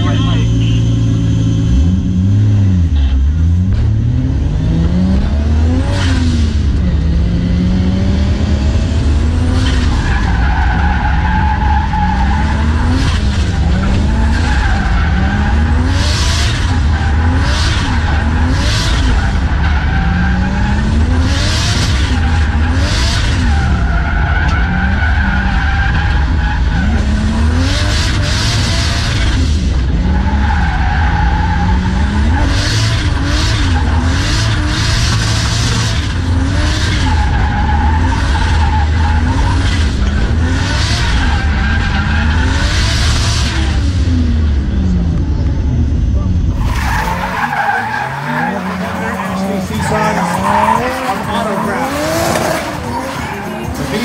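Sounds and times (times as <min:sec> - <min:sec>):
car engine revving: 0:00.0 - 0:54.0
tyres squealing: 0:46.6 - 0:54.0.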